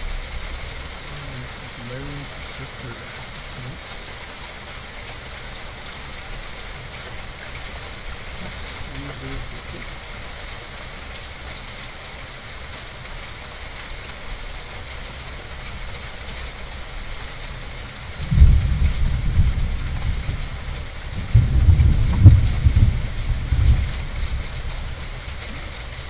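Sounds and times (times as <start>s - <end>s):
steady rain falling: 0.0s - 26.0s
deep thunder rumble: 18.2s - 25.2s.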